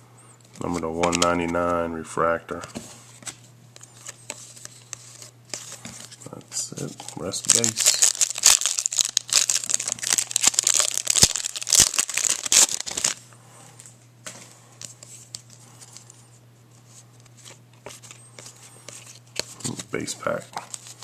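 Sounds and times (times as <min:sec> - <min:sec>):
faint handling of cards: 0:00.4 - 0:21.0
foil wrapper tearing and crinkling: 0:07.2 - 0:13.2.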